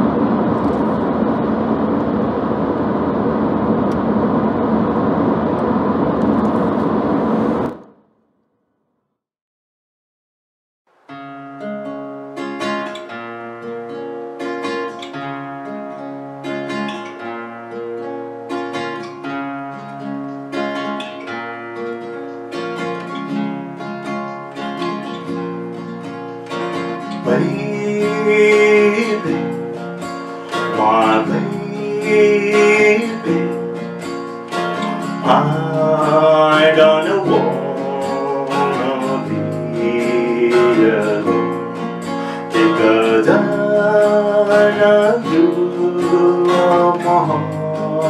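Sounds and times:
plucked guitar notes: 11.1 - 48.0
person singing: 27.0 - 48.0.

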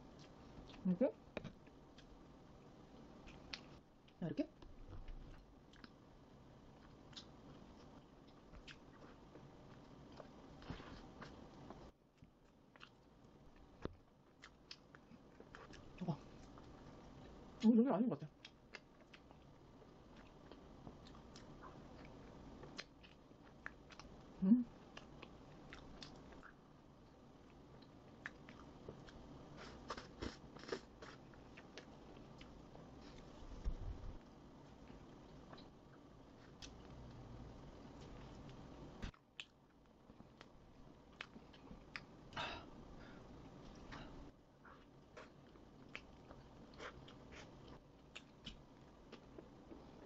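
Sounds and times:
close-up chewing: 6.7 - 17.4, 18.4 - 24.2, 24.8 - 26.6, 43.1 - 50.0
person humming: 24.4 - 24.7.

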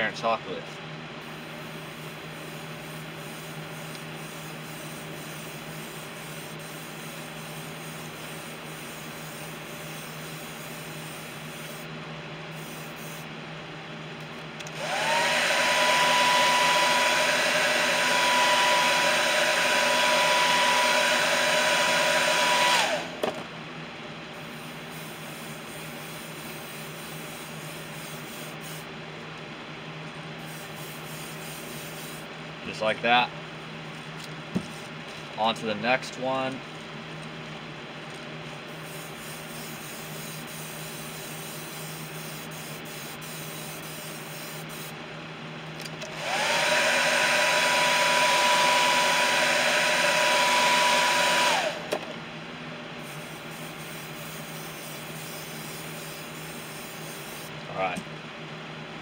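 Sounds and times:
airbrush spraying paint: 1.2 - 11.9, 12.5 - 13.3, 24.3 - 28.9, 30.4 - 32.3, 38.4 - 45.0, 53.0 - 57.6.

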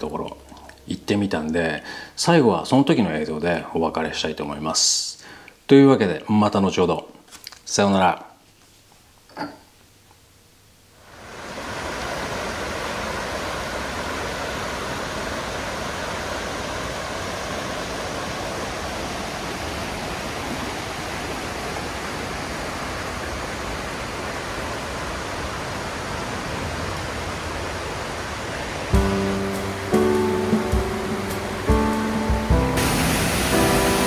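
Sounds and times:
stream rushing over rocks: 11.1 - 34.0.

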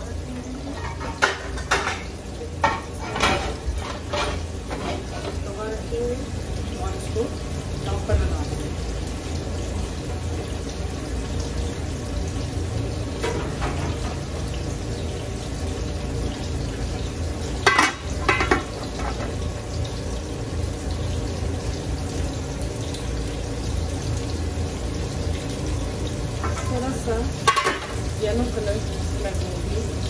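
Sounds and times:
stove low hiss: 0.0 - 30.0
pot lid clanking on pot: 0.7 - 5.4, 17.6 - 19.4, 26.4 - 26.8, 27.4 - 28.0.

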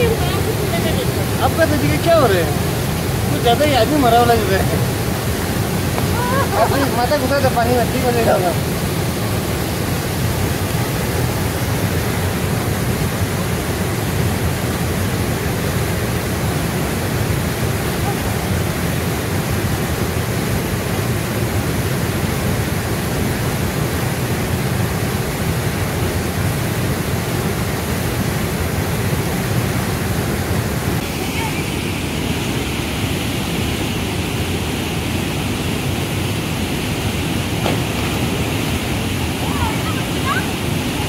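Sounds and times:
waterfall pouring into pool: 0.0 - 29.6.

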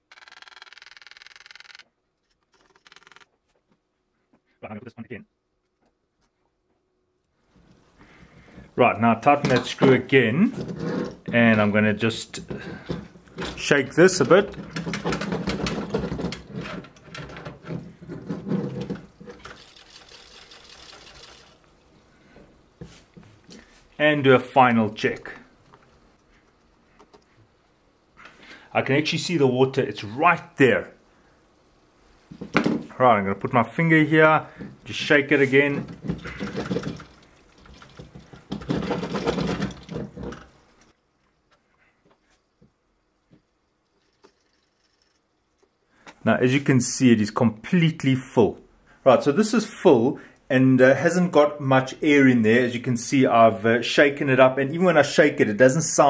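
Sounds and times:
coolant sloshing and rattling: 35.8 - 40.8.

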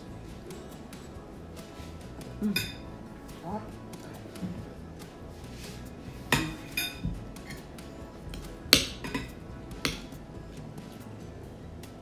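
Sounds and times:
quiet background music: 0.0 - 12.0
cutlery clinking against bowls: 2.4 - 2.9, 6.2 - 7.7, 8.3 - 10.2.

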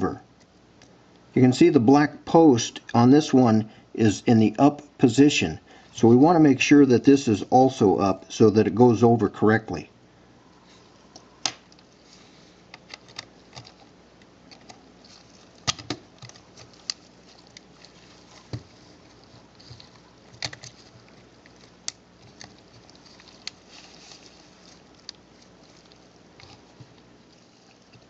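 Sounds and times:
sharp plastic snaps: 11.4 - 11.8, 15.6 - 17.0.

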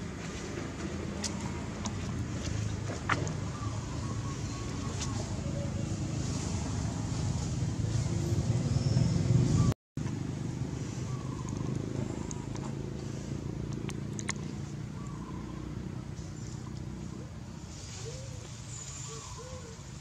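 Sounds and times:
passing vehicle engine rumble: 0.0 - 20.0.

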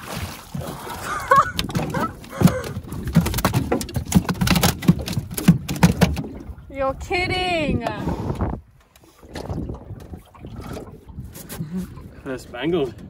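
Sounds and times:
fish slapping on metal deck: 1.6 - 6.3.

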